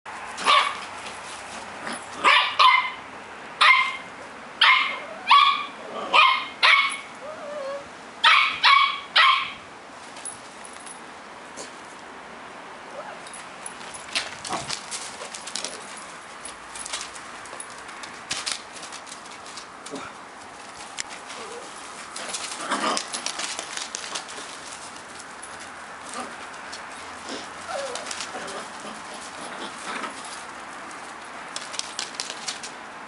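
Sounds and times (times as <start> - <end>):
puppies yapping: 27.2 - 30.4.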